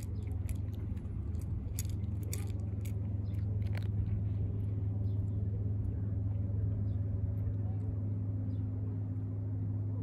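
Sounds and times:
cat crunching dry kibble: 0.0 - 4.8
steady low hum: 0.0 - 10.0.

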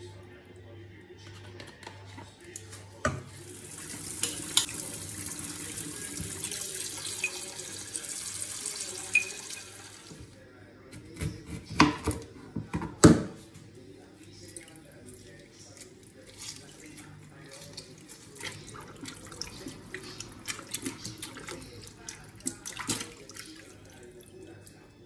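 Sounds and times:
tap running water: 3.0 - 10.3.

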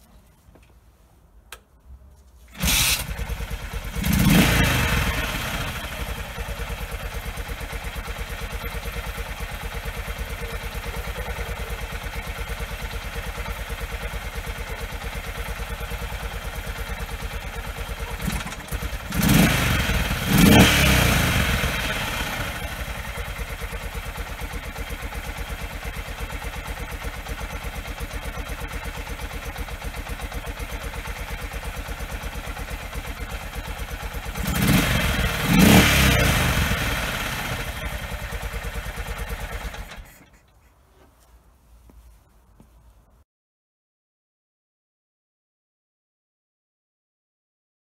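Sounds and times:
motorcycle engine idling: 2.6 - 40.4.

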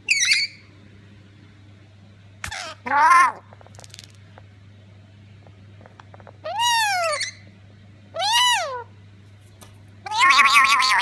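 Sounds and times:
parrot meow-like calls: 2.5 - 3.5, 6.4 - 7.4, 8.2 - 8.9, 10.0 - 11.0.

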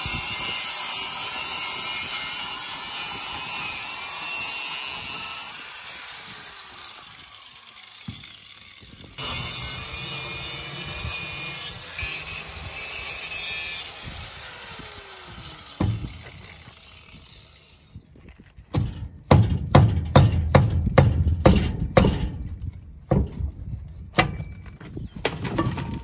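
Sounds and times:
angle grinder cutting steel: 0.0 - 17.9
loud metal bangs: 18.8 - 22.5.

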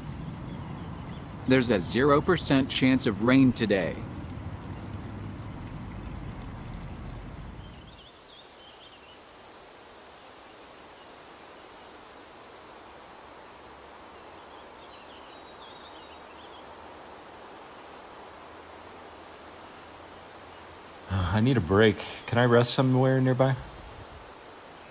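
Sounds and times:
road traffic rumble: 0.0 - 8.9, 12.6 - 24.9
songbird chirps: 0.0 - 24.9
quiet even hiss: 5.6 - 24.9.

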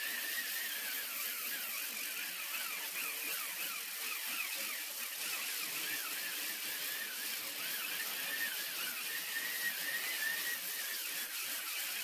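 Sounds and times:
electric polisher sanding metal: 0.0 - 12.0.

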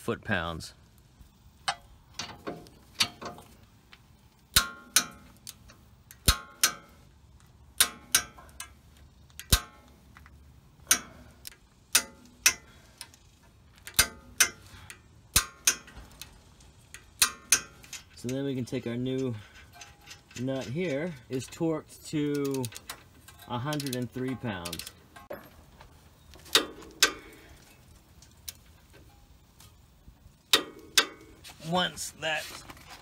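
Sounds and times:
torque wrench clicking: 7.7 - 21.6.

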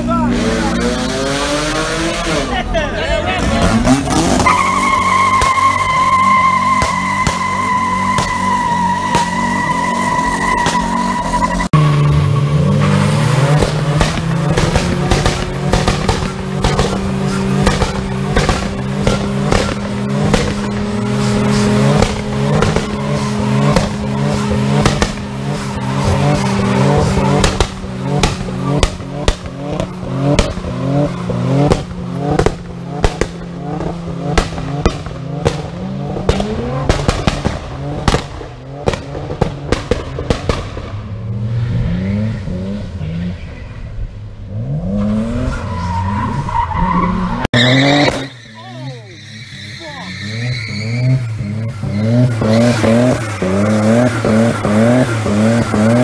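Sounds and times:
car engine at high revs: 0.0 - 56.0
tyres squealing: 3.4 - 13.6, 45.5 - 56.0
exhaust pops and bangs: 3.6 - 11.1, 12.8 - 41.1.

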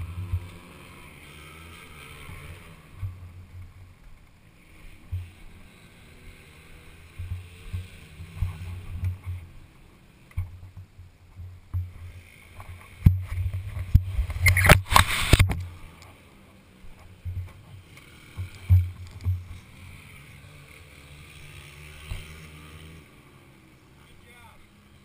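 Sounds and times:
camera rumbling over gravel: 10.3 - 16.3, 16.9 - 19.8
burst of rushing noise: 14.3 - 15.5.

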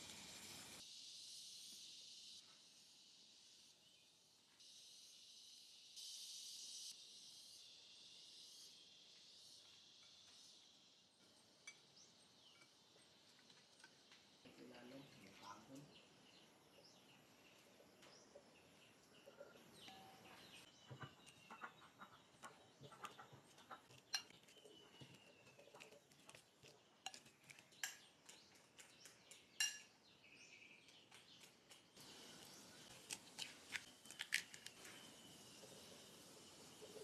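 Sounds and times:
utensils clinking against dishes: 23.9 - 24.8, 29.6 - 29.9.

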